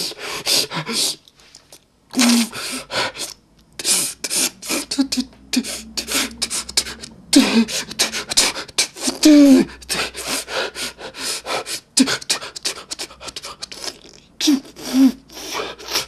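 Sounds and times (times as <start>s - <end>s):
man breathing forcefully: 2.5s - 4.9s, 5.5s - 13.4s.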